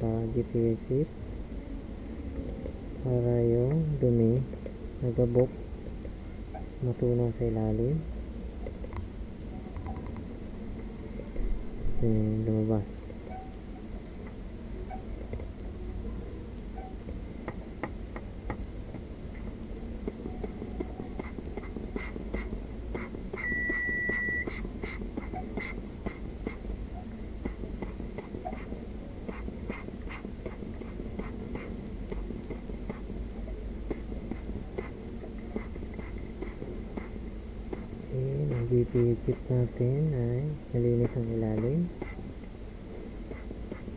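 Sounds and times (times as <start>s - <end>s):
brush scratching circuit board: 20.1s - 39.8s, 40.9s - 42.6s, 43.3s - 43.9s
short beep: 23.4s - 24.6s.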